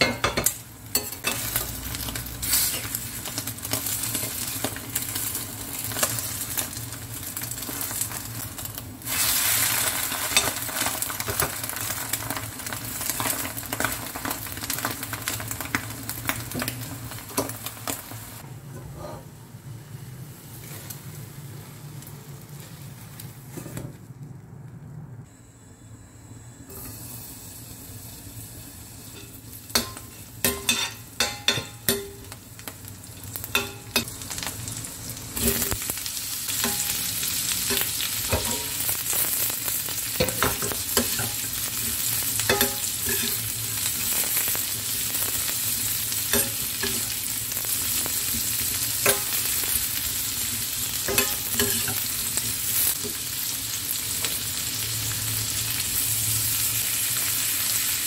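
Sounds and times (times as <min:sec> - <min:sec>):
pepper sizzling in oil: 0:00.0 - 0:18.4, 0:26.7 - 0:58.0
metal spoon clinking on pan: 0:29.2 - 0:32.4, 0:33.5 - 0:34.1, 0:42.5 - 0:43.4, 0:49.0 - 0:49.4, 0:51.1 - 0:52.0.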